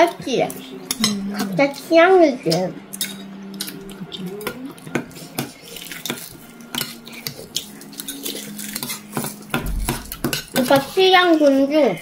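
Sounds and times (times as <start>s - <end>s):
cutlery clinking on dishes: 2.5s - 11.5s.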